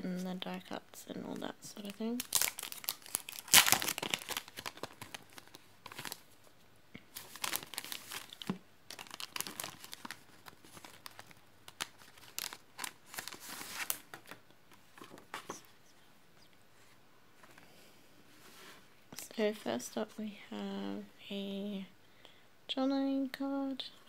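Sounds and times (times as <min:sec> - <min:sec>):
cellophane packaging crinkling: 0:01.8 - 0:06.3, 0:07.1 - 0:14.4
paper sheets rustling: 0:07.1 - 0:15.7.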